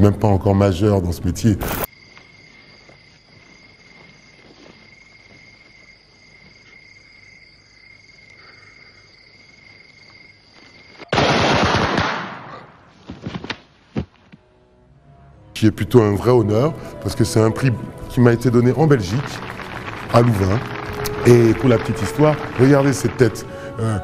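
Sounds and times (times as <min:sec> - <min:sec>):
insects chirping: 0:01.6 - 0:11.4, 0:16.8 - 0:24.0
gunfire: 0:11.1 - 0:12.8.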